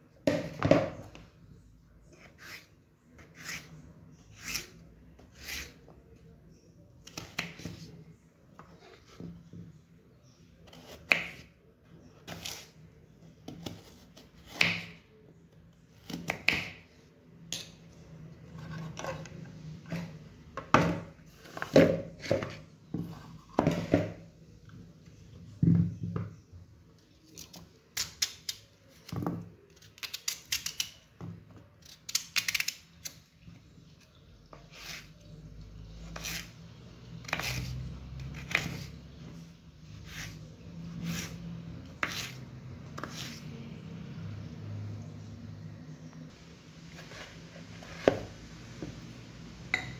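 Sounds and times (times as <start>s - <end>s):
knife cutting potatoes on wooden board: 2.1s - 5.9s, 7.0s - 8.0s, 10.6s - 12.8s, 13.4s - 15.1s, 15.9s - 16.9s, 34.5s - 43.6s.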